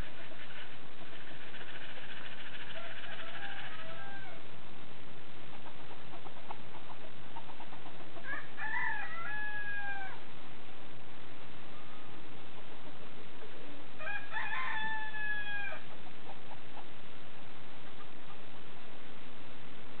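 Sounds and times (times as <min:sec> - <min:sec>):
rooster crowing: 0:01.5 - 0:04.4, 0:08.2 - 0:10.2, 0:14.0 - 0:15.9.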